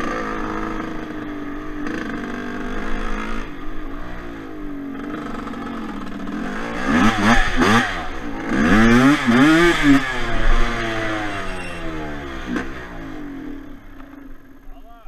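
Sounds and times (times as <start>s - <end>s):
quad engine revving: 0.0s - 14.1s.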